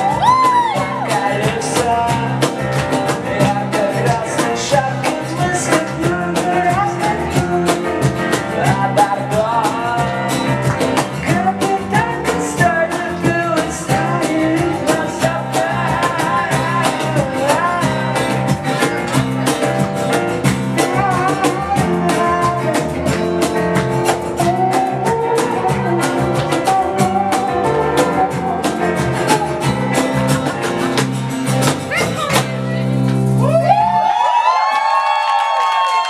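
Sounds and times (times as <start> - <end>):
man singing: 0.0 - 18.8, 20.8 - 30.4
strummed acoustic guitar: 0.0 - 33.4
cajon slaps: 30.3 - 33.3.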